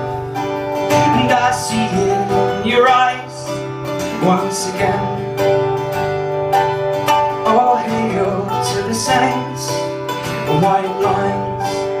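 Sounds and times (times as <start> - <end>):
acoustic guitar strumming: 0.0 - 12.0
man singing: 0.9 - 5.5, 7.4 - 12.0.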